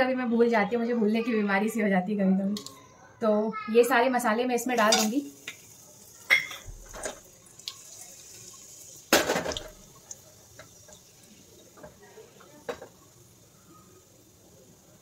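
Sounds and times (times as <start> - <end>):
spices sizzling in hot oil: 4.5 - 15.0.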